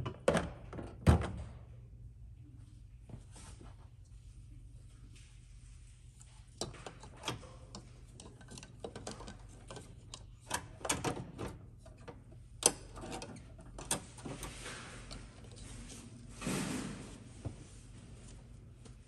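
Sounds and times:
plastic parts clicking and knocking: 6.6 - 14.0.

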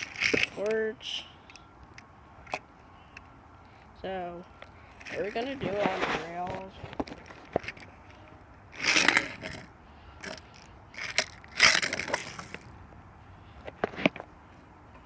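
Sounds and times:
toy train scraping on track: 8.8 - 9.6, 10.2 - 12.6.

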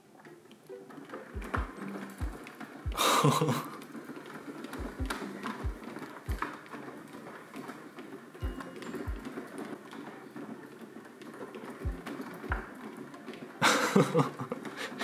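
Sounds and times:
light background music: 0.0 - 15.0
soft low thuds: 1.4 - 3.1.

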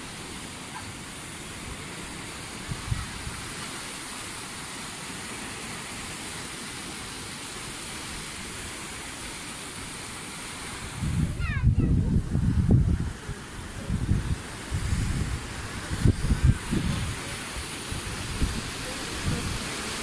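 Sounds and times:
sea surf rushing: 0.0 - 20.0
wind: 0.0 - 20.0.

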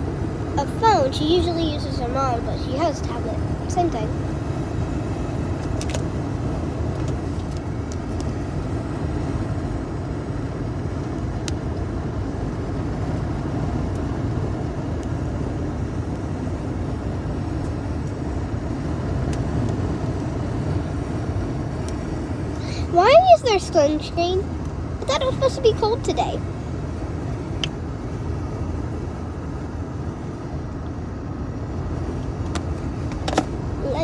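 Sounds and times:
car road and engine rumble: 0.0 - 34.0.

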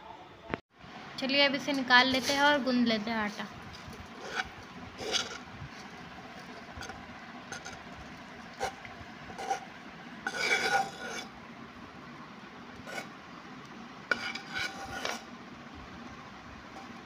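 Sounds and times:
metal spoon scraping a pan: 1.6 - 7.9, 8.5 - 11.3, 12.8 - 13.1, 14.1 - 15.3.

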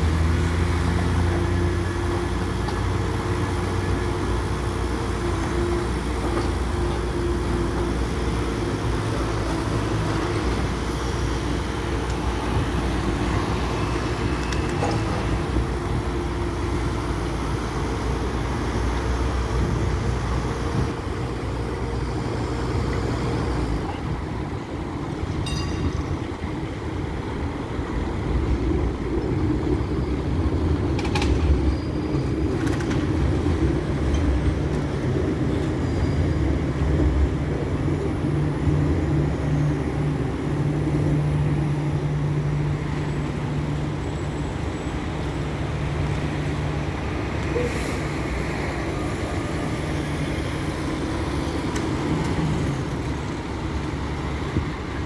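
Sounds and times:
city street traffic: 0.0 - 55.0
tram passing: 0.0 - 55.0.

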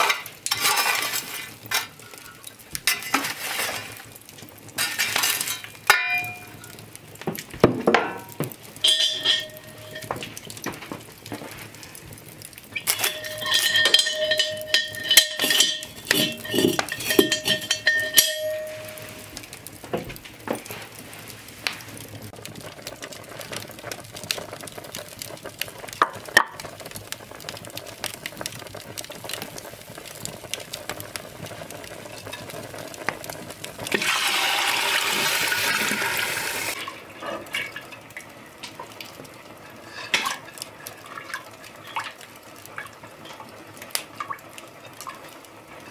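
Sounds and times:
cast iron pot clattering: 0.0 - 4.0, 4.7 - 11.6, 12.7 - 20.7, 25.9 - 26.7, 30.1 - 36.0, 39.7 - 42.2
liquid pouring into pot: 30.4 - 38.3.

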